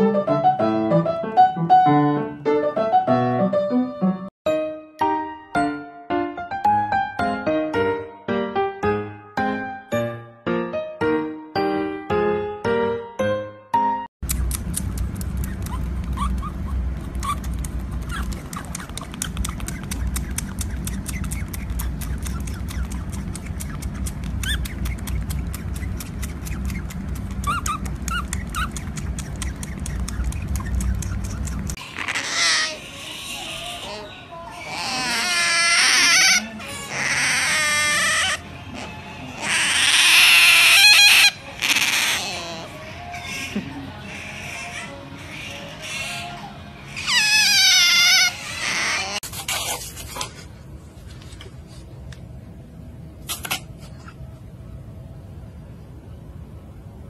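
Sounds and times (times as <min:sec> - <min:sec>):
wet smacking suckling clicks: 0:14.2 - 0:16.2, 0:17.0 - 0:31.8
low steady rumble: 0:14.2 - 0:31.8
otter pup squealing calls: 0:14.7 - 0:49.9.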